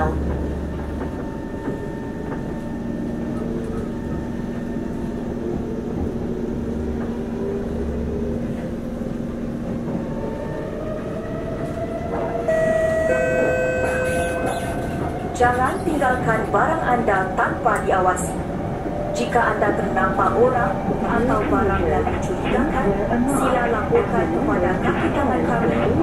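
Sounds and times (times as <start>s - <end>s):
train rumble inside carriage: 0.0s - 26.0s
steady tones: 12.1s - 26.0s.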